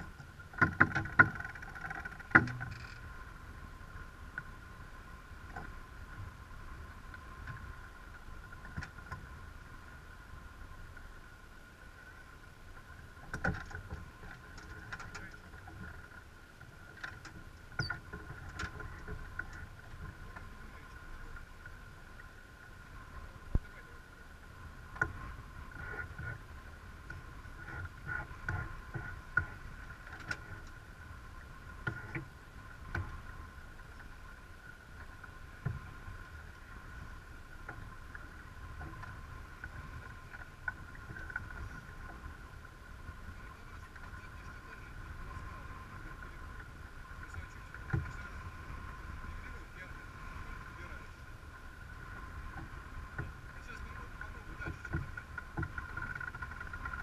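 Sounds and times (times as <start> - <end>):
rush of wind and water: 0.0 - 57.0
winch and line clicks: 0.1 - 3.1.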